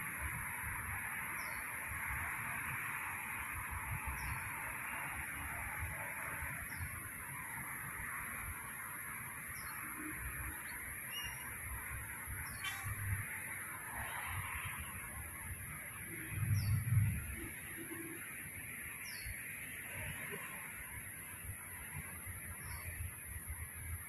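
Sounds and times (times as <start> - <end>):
constant high whine: 0.0 - 24.0
small bird chirping: 10.5 - 11.6.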